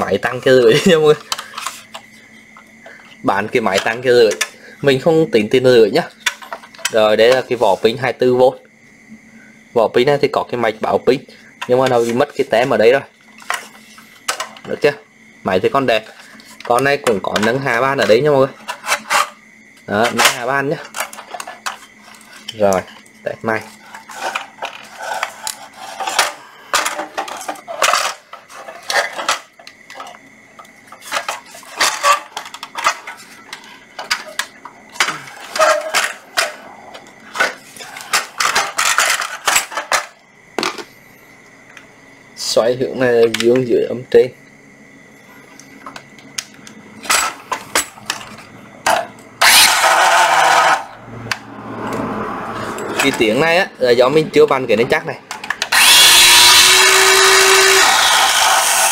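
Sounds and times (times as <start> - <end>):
circular saw running: 49.4 - 51.0, 55.7 - 58.9.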